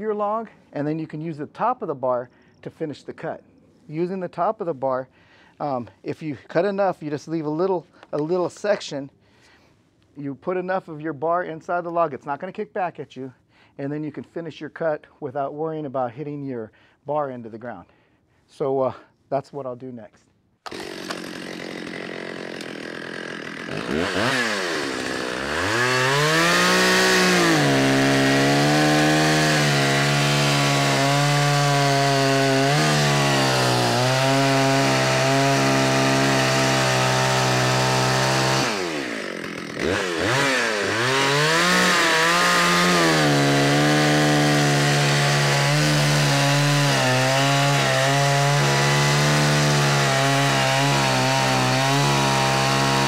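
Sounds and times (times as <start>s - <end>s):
chainsaw cutting wood: 20.6s - 53.0s
chainsaw idling and revving: 20.7s - 53.0s.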